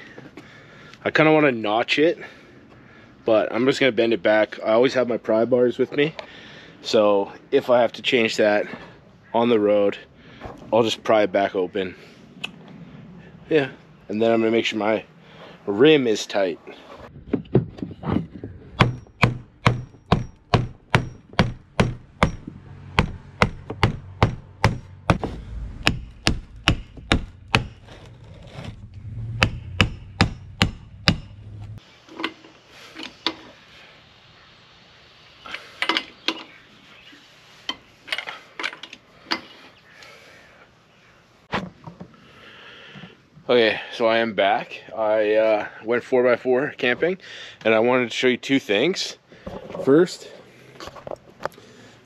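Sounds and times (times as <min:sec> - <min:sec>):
hand tool knocks: 0:18.8 - 0:25.2.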